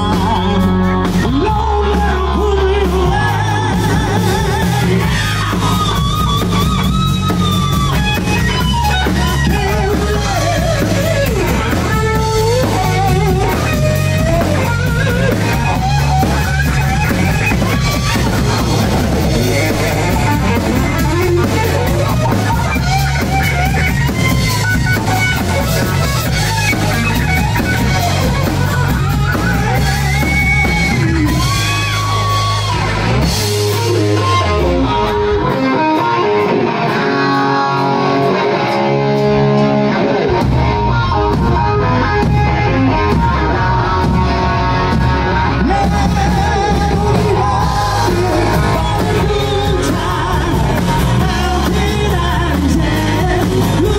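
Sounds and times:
bass guitar: 0:00.0 - 0:53.9
drum kit: 0:00.0 - 0:53.9
electric guitar: 0:00.0 - 0:53.9
keyboards: 0:00.0 - 0:53.9
lead singer: 0:00.0 - 0:53.9.

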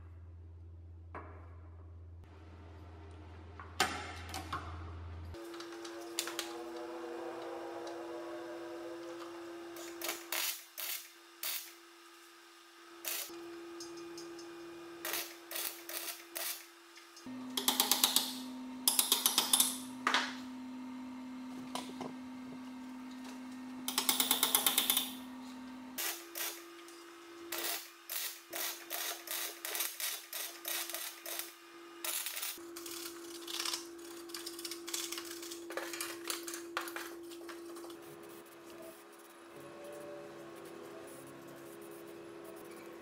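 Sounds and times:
short tack welds: 0:09.8 - 0:11.8, 0:15.0 - 0:16.7, 0:27.5 - 0:32.6
welder crackling: 0:13.0 - 0:13.3, 0:15.0 - 0:19.7, 0:27.5 - 0:32.6.

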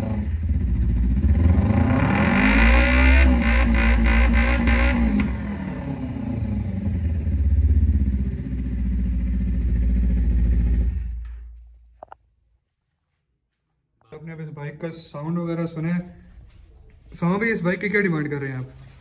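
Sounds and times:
motorcycle engine revving and idling: 0:00.0 - 0:11.7.

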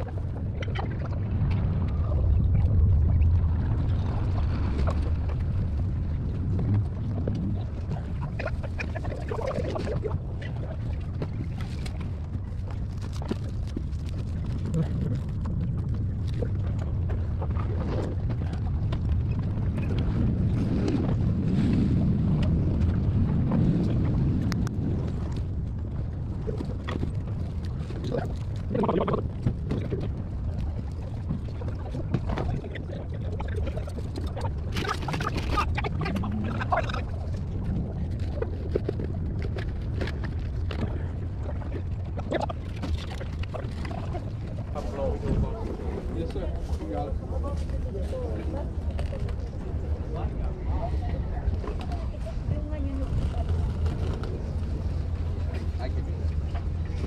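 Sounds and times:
wind rumbling on microphone: 0:00.0 - 0:57.0.

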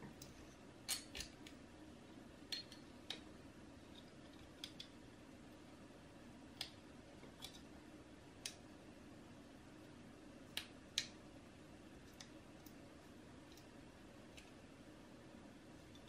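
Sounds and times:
small clicks of chip handling: 0:00.2 - 0:01.6, 0:02.5 - 0:03.3, 0:03.9 - 0:05.0, 0:06.5 - 0:07.7, 0:12.0 - 0:12.8.

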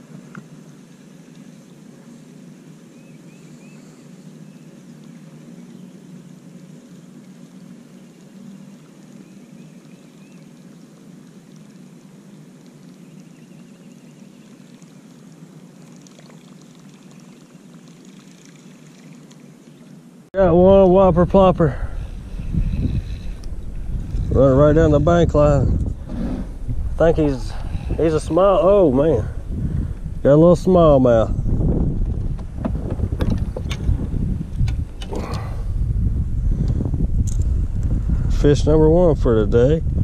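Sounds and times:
fishing reel whirring: 0:22.0 - 0:24.4.

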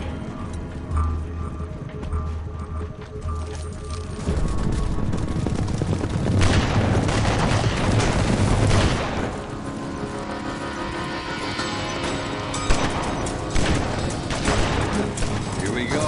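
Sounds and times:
galloping horse hoofbeats: 0:00.1 - 0:08.6
rapid gunshots: 0:05.2 - 0:09.5.

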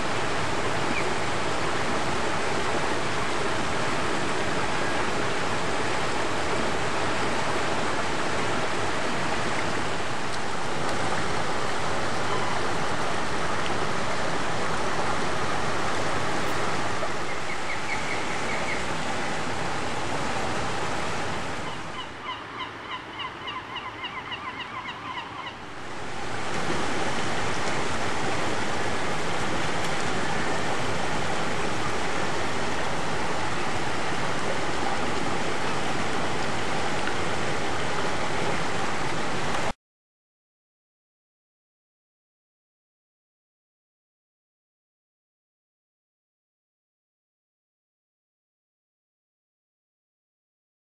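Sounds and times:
water rushing down stone steps: 0:25.9 - 0:39.7.

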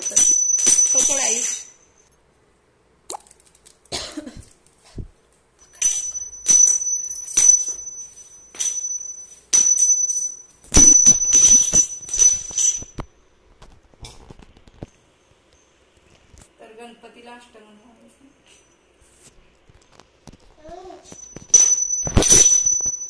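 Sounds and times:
brass bell ringing: 0:21.2 - 0:23.0.

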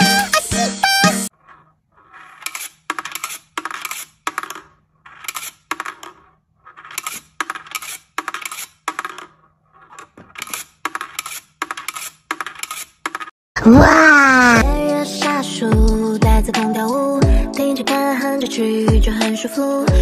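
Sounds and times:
ball clacking down wire rails: 0:01.3 - 0:13.3
steel ball whirring in dish: 0:01.3 - 0:13.3.

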